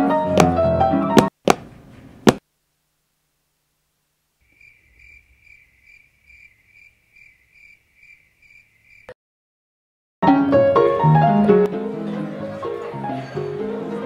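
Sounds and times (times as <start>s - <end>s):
sharp knocks: 1.2s - 2.4s
cricket chirping: 4.4s - 9.2s.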